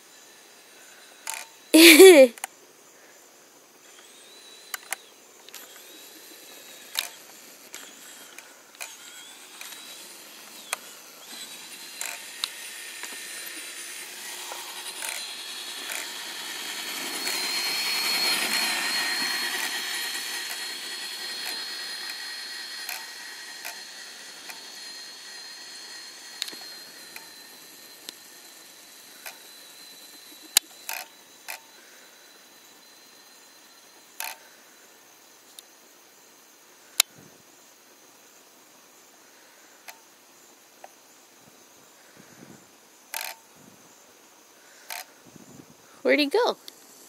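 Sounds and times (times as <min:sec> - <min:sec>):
toy truck electric motor whining: 0:00.0 - 0:02.4, 0:03.9 - 0:35.0, 0:42.0 - 0:43.4, 0:44.6 - 0:45.5
sharp clicks: 0:06.9 - 0:13.6.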